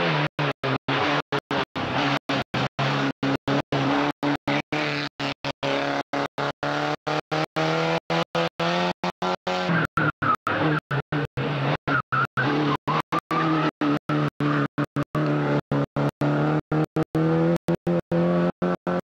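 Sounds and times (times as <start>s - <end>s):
rally car engine at high revs: 0.0s - 19.0s.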